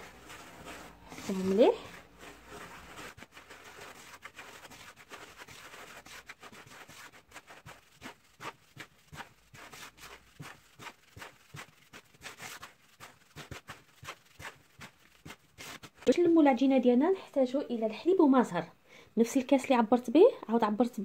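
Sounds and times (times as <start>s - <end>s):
hands rubbing grains in bowl: 0.0s - 16.1s.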